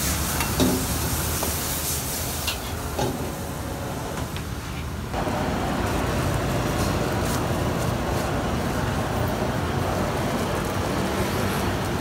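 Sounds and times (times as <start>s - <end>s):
gas burner rumbling: 0.0s - 12.0s.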